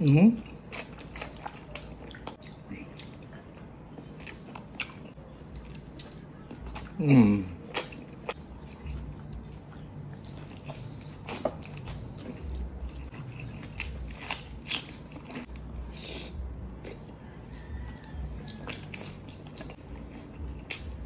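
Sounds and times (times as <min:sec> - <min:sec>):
biting and chewing food: 0:00.4 - 0:21.0
crunching cucumber: 0:10.2 - 0:15.5.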